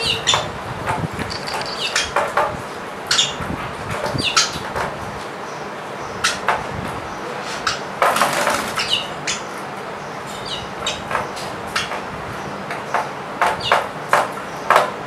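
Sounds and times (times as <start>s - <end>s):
sparrow chirping: 0.0s - 0.5s, 1.2s - 2.2s, 8.7s - 11.9s
wings fluttering: 0.9s - 2.2s, 8.1s - 9.0s.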